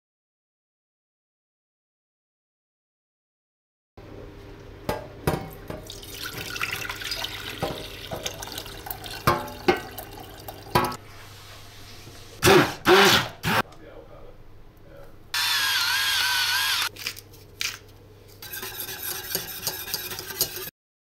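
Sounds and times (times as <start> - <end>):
liquid pouring into saucepan: 5.5 - 11.0
hand blender: 12.4 - 13.6, 15.4 - 16.9.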